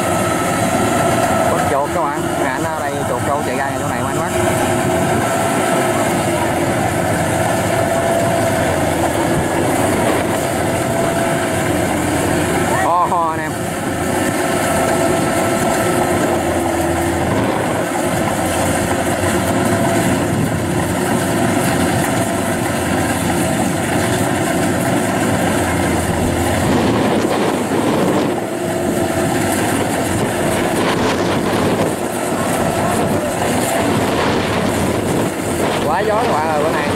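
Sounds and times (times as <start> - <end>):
combine harvester running: 0.0 - 36.9.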